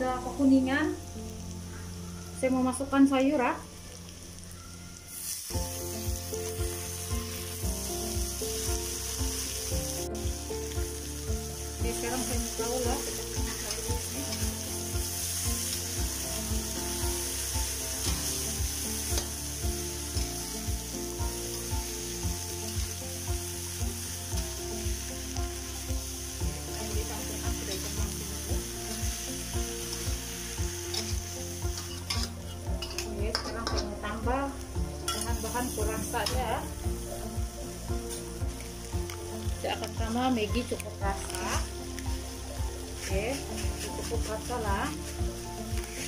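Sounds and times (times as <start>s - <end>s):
food sizzling in a wok: 0.0s - 46.0s
metal spatula scraping a wok: 30.9s - 33.9s.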